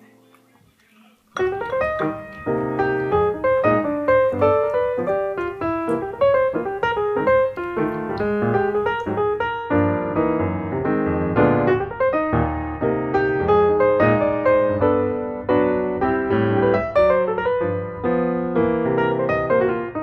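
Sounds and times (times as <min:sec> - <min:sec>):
piano music: 0:00.0 - 0:00.6, 0:01.4 - 0:20.0.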